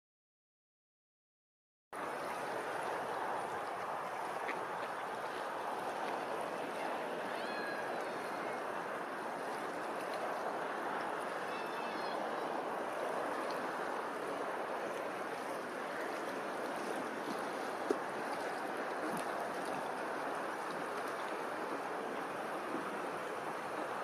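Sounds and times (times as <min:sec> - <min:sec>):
small waves lapping: 0:02.0 - 0:24.0.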